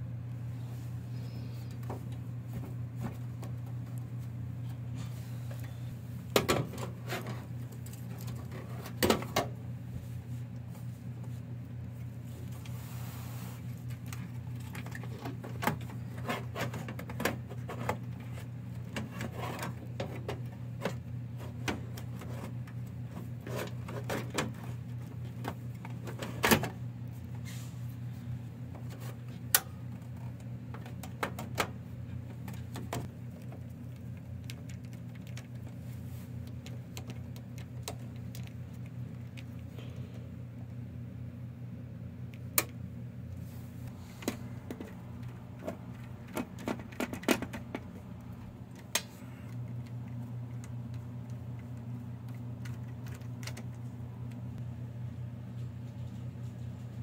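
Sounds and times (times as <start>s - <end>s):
steady low hum: 0.0s - 57.0s
metallic clicks and knocks on computer case: 45.6s - 47.9s.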